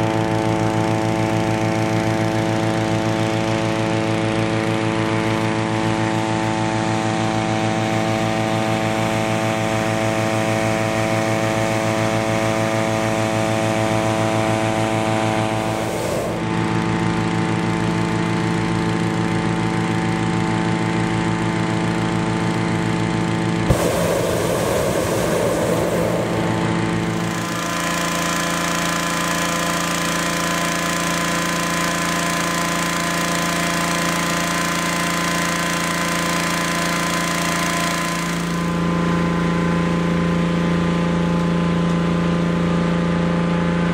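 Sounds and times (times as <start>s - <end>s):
petrol engine fans running: 0.0s - 42.5s
rushing noise: 23.7s - 28.2s.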